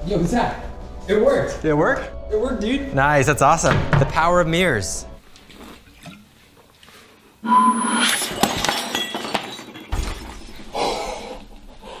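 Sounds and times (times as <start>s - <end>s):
glass bottle shattering: 8.0s - 10.6s
glass pieces clinking on a table: 8.2s - 10.3s.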